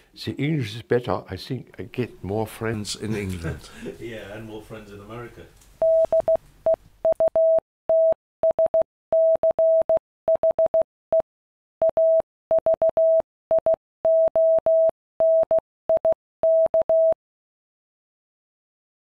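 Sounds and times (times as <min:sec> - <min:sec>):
morse code beeps: 0:05.8 - 0:11.2, 0:11.8 - 0:17.2.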